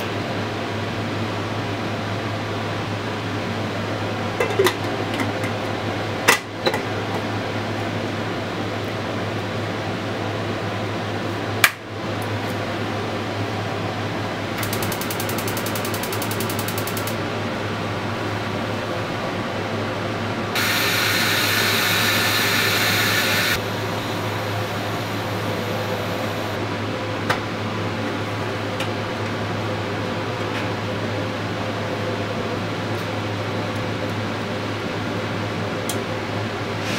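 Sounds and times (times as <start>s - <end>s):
rapid high ticking: 14.6s - 17.2s
low hum: 20.6s - 26.6s
pressure cooker steam hiss: 20.6s - 26.6s.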